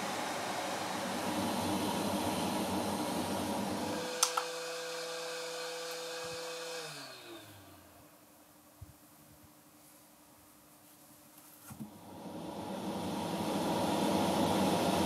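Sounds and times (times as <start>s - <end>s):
hot air station blowing: 0.0s - 7.6s, 12.0s - 15.0s.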